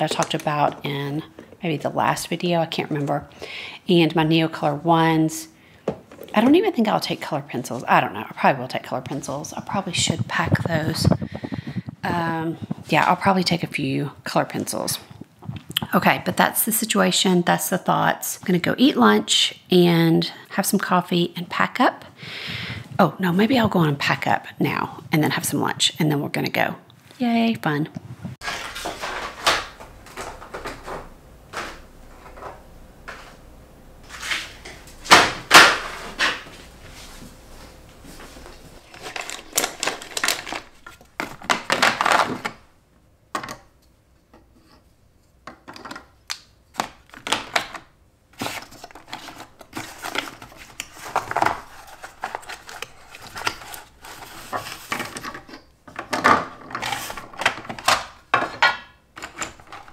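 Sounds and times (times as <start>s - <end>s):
plastic cases and cardboard handled: 0.0s - 1.7s, 28.4s - 33.4s, 38.8s - 42.6s, 45.4s - 59.9s.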